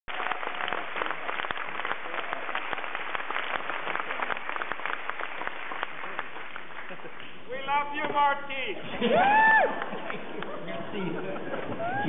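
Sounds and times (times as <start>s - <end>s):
audience applauding: 0.0s - 7.8s, 9.0s - 12.0s
loud individual claps: 0.1s - 7.4s.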